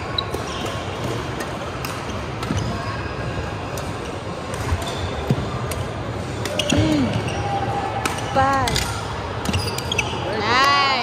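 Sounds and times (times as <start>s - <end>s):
din of sports hall: 0.0s - 11.0s
sneakers squeaking on wooden floor: 9.5s - 10.2s.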